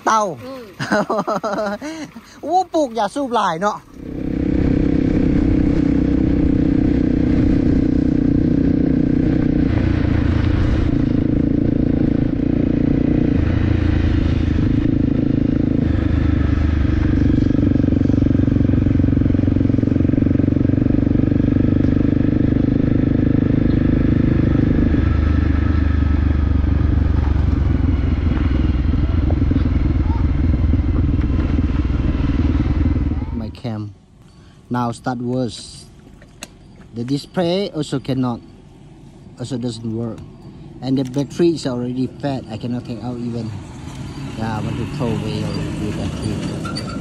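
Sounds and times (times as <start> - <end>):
motorcycle engine running: 3.9 - 33.8, 36.4 - 47.0.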